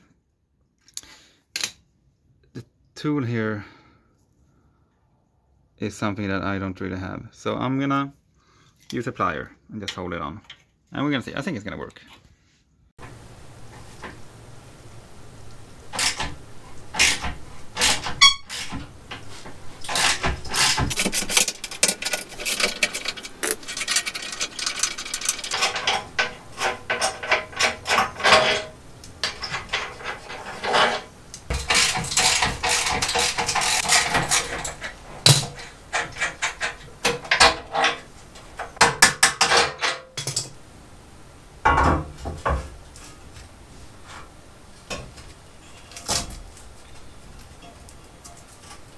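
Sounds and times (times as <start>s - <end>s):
metal tools clanking: 15.9s - 40.6s.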